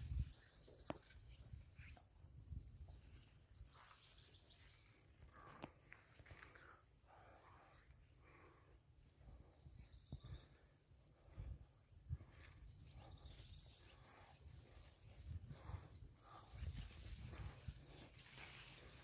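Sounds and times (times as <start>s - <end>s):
high insect hum: 0.0s - 19.0s
pulsed insect trills: 0.0s - 19.0s
rustle of leaves: 16.8s - 19.0s.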